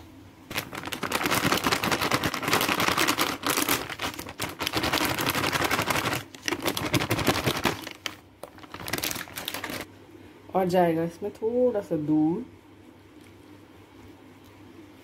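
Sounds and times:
plastic packet crinkling: 0.5s - 9.9s.

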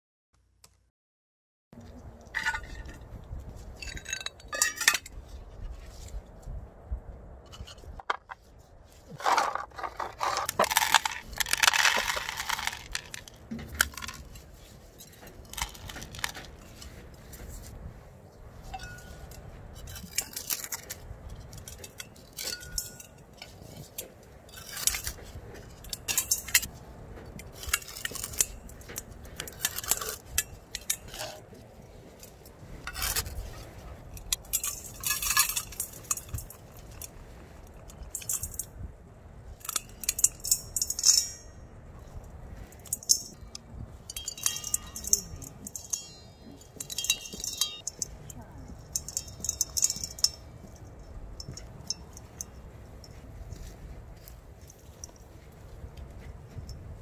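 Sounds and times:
flowerpot clinking against metal bowl: 9.2s - 14.4s, 18.6s - 26.7s, 42.8s - 53.8s.

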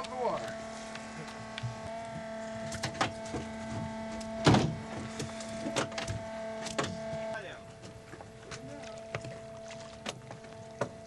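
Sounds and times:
steady hum: 0.0s - 11.0s
thump: 4.4s - 4.8s.

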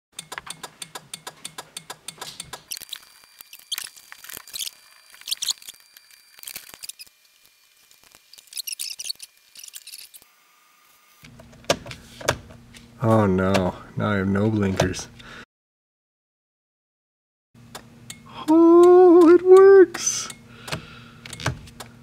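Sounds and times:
turn signal flasher clicking: 0.2s - 2.7s, 17.7s - 22.0s.

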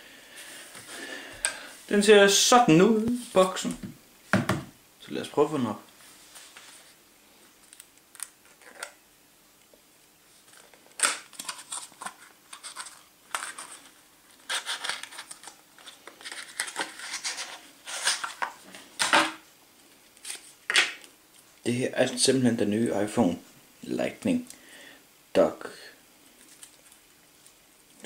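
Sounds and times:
card and plastic scraping: 10.5s - 19.4s.

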